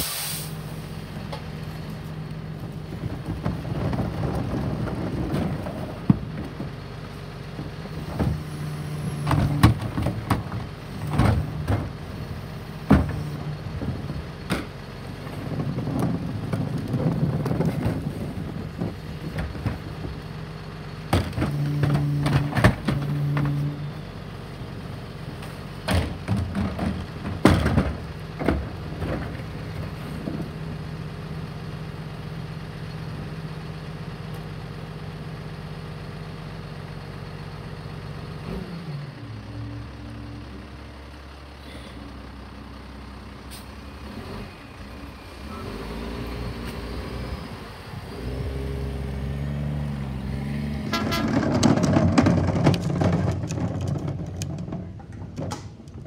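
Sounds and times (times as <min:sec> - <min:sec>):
garbage truck engine: 0:00.0 - 0:56.0
clattering and knocking: 0:25.9 - 0:29.5, 0:50.9 - 0:56.0.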